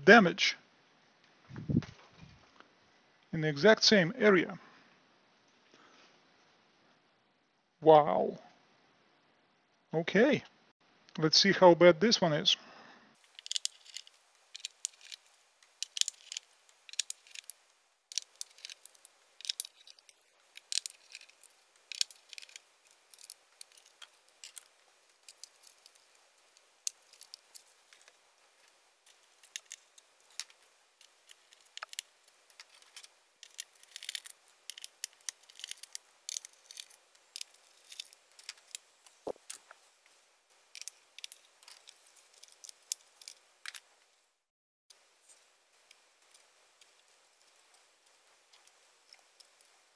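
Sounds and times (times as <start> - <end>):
small parts clicking and scraping: 13.2 - 44.1, 44.9 - 49.9.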